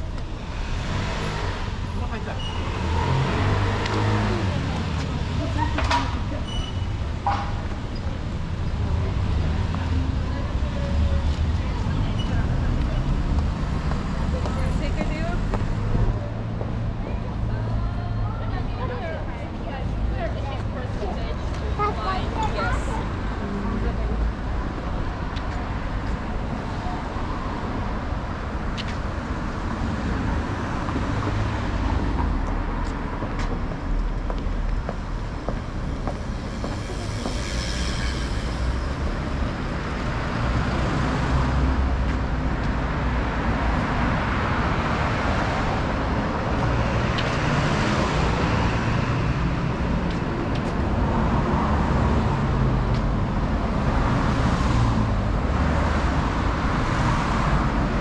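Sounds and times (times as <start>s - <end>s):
traffic rumble: 0.0s - 58.0s
vehicle passing close: 34.7s - 41.7s.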